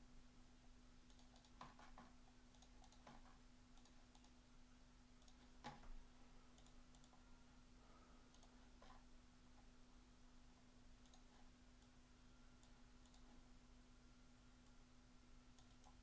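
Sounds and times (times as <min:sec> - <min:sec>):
steady low hum: 0:00.0 - 0:16.0
faint computer keyboard clicks: 0:01.1 - 0:04.4, 0:05.2 - 0:05.9, 0:06.5 - 0:07.2, 0:08.3 - 0:09.0, 0:11.0 - 0:12.0, 0:12.6 - 0:13.4, 0:15.6 - 0:16.0.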